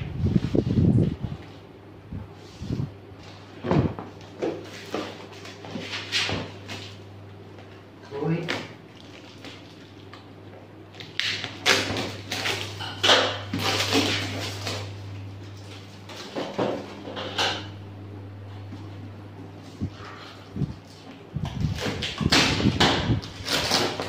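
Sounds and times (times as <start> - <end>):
packing tape ripping off box: 11.0 - 15.0, 21.4 - 24.0.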